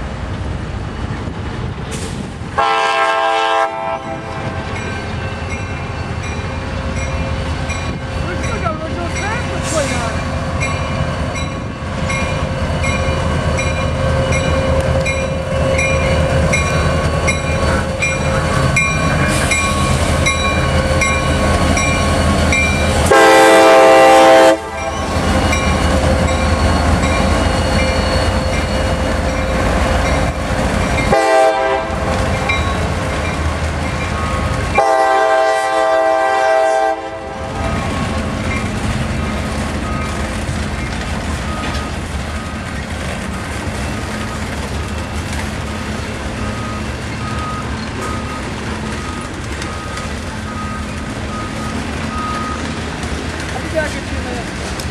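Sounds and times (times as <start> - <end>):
diesel locomotives running: 0.0 - 54.9
train air horn: 2.6 - 4.6, 23.0 - 24.9, 31.1 - 32.2, 34.8 - 37.6
freight cars clicking over rail joints: 37.7 - 54.9.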